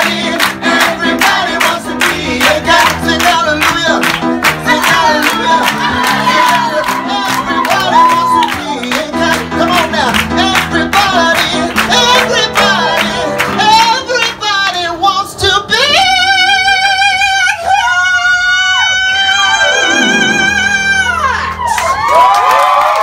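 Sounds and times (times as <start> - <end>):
man singing: 0.0 - 21.5
instrumental accompaniment: 19.5 - 21.7.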